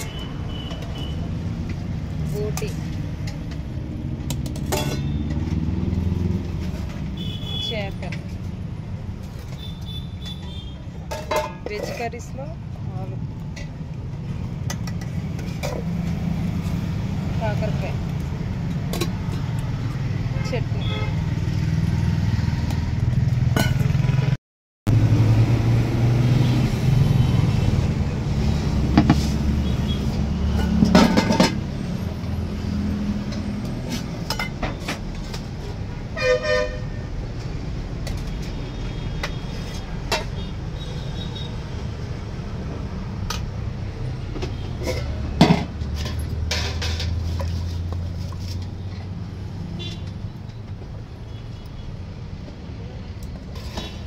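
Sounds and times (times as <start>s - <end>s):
traffic rumble: 0.0s - 54.0s
ladles clinking against steel containers: 4.3s - 5.7s, 10.2s - 12.4s, 30.5s - 31.7s, 39.2s - 40.6s, 44.4s - 48.0s
car horn toot: 7.2s - 7.8s, 36.2s - 37.0s.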